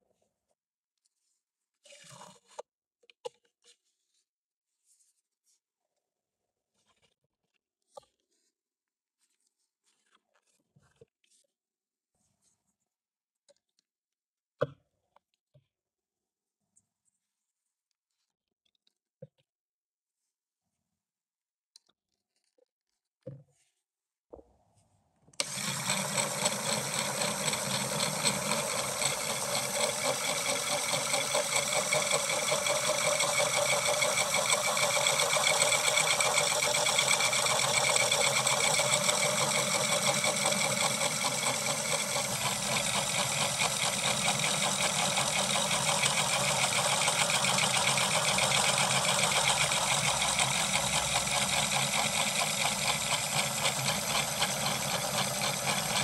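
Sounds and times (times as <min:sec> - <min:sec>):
electric motor whirring: 0:25.4 - 0:56.0
plastic gears rattling: 0:25.4 - 0:56.0.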